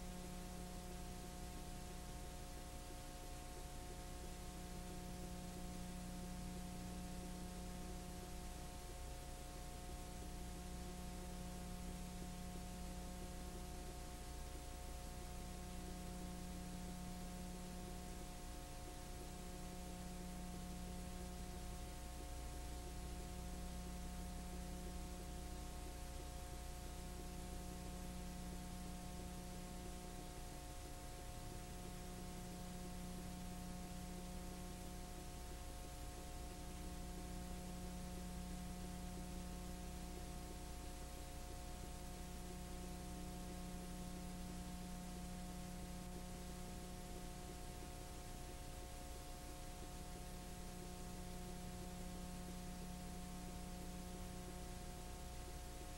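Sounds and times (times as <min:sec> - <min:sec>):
electrical hum: 0:00.0 - 0:55.9
low hum tone: 0:00.0 - 0:55.9.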